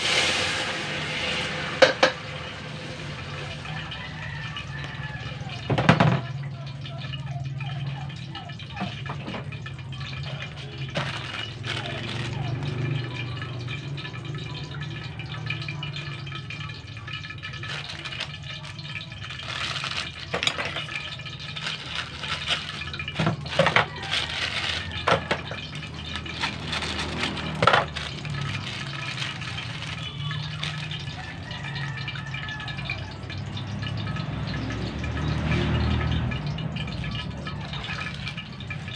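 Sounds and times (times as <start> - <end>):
gas burner hum: 0.0 - 4.7, 15.9 - 31.3
plastic wrapper crinkling and tearing: 8.8 - 13.0, 17.2 - 31.2.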